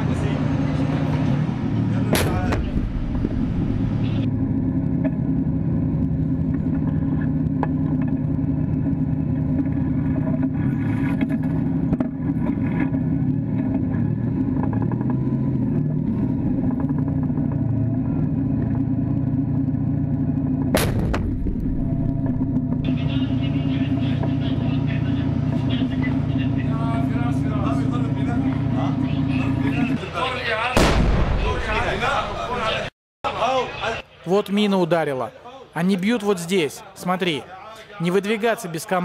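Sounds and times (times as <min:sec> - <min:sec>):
tank diesel engine droning: 0:00.0 - 0:34.2
sharp bang: 0:20.7 - 0:21.9, 0:30.8 - 0:32.1.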